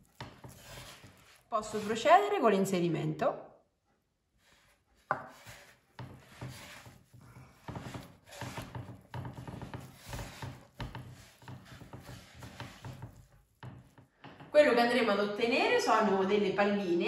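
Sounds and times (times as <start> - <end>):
hands kneading dough: 0.0 - 2.8, 4.5 - 14.2
dough thumping on wood: 6.0 - 14.6.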